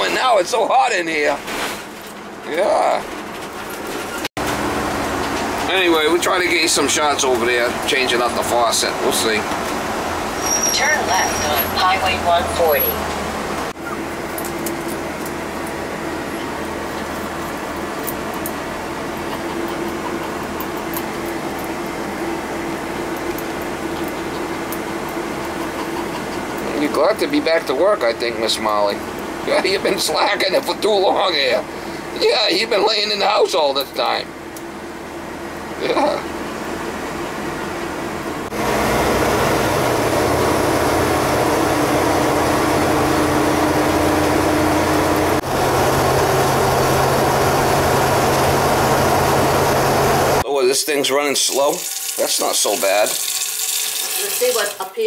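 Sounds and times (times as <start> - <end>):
engine and road noise: 0.0 - 50.5
heater blower fan: 12.6 - 50.4.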